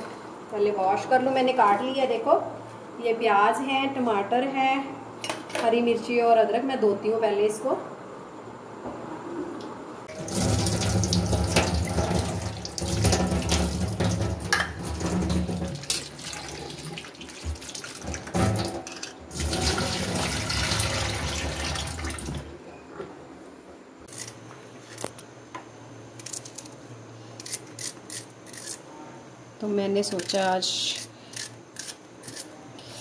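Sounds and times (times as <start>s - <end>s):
tap water running onto plate: 10.1s - 22.4s.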